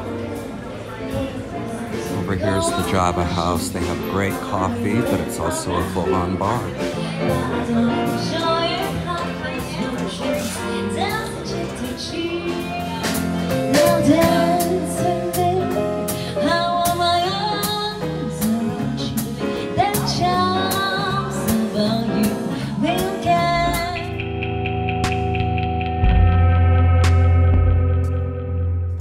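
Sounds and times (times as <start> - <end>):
woman singing into microphone: 2.2 - 24.2
drum kit beat: 12.5 - 15.9, 18.4 - 28.3.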